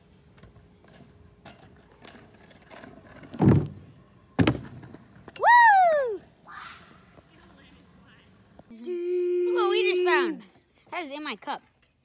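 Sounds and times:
scooter wheels thumping ramp: 0:00.4 - 0:05.4
person whooping: 0:05.4 - 0:06.8.

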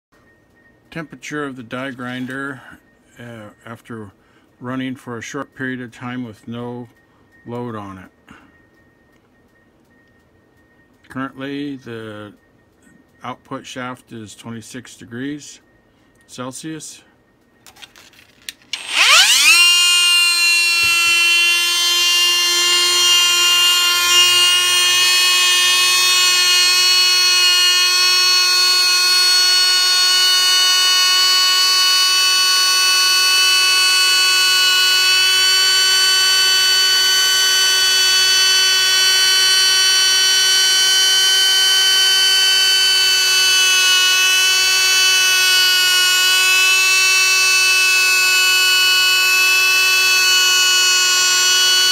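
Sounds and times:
die grinder whining: 0:18.7 - 0:51.9.

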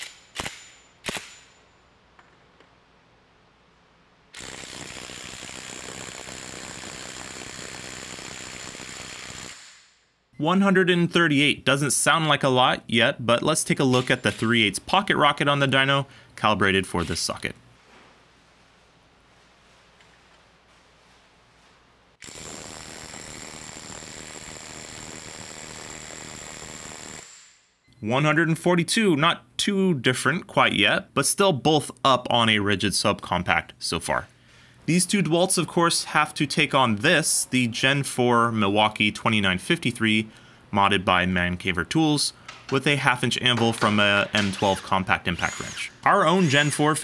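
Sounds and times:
thin high whine: 0:22.2 - 0:27.3.

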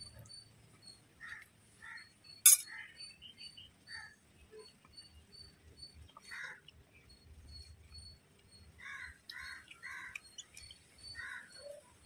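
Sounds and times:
crows cawing: 0:06.3 - 0:06.6, 0:08.8 - 0:10.2, 0:11.2 - 0:11.6.

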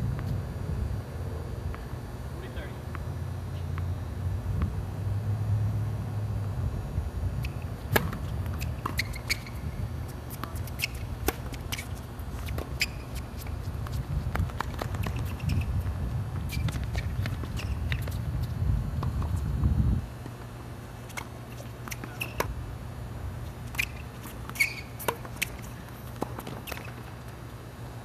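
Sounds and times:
wind buffeting microphone: 0:13.6 - 0:20.1.

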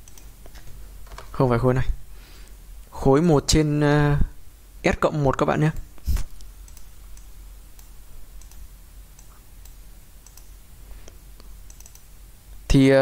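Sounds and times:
computer mouse clicking: 0:00.0 - 0:01.3, 0:05.8 - 0:12.1
steady low hum: 0:00.0 - 0:13.0.

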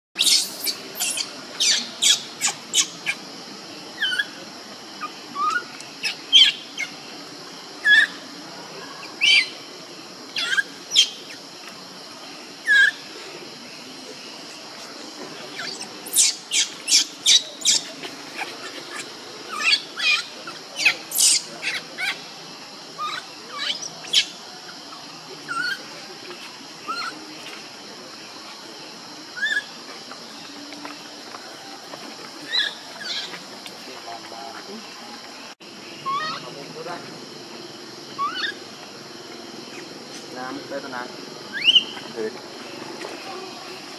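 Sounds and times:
baby macaque squealing: 0:00.2 - 0:03.2, 0:04.0 - 0:04.4, 0:05.0 - 0:06.9, 0:07.8 - 0:08.2, 0:10.3 - 0:11.2, 0:12.6 - 0:13.0, 0:15.5 - 0:22.2, 0:23.0 - 0:24.4, 0:25.5 - 0:25.9, 0:26.9 - 0:27.2, 0:29.4 - 0:29.7, 0:32.5 - 0:33.4, 0:36.0 - 0:36.5, 0:38.2 - 0:38.6, 0:41.5 - 0:41.9
steady high background hiss: 0:00.2 - 0:43.9.

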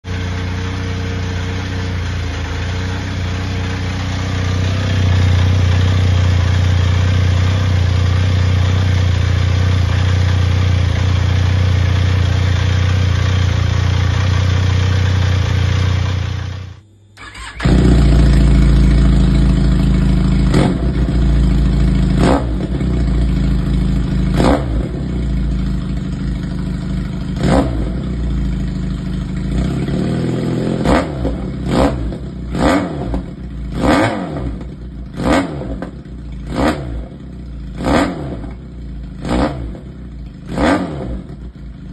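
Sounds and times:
motorcycle engine idling: 0:00.0 - 0:41.9
motorcycle engine revving: 0:00.0 - 0:41.9.

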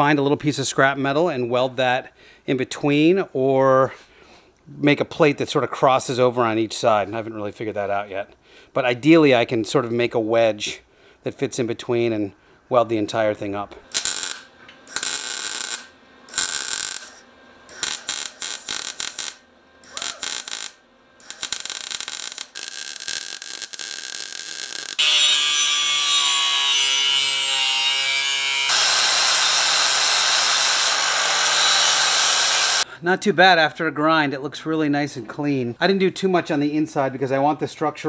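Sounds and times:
angle grinder grinding: 0:13.9 - 0:32.8
welder buzzing: 0:13.9 - 0:32.8.

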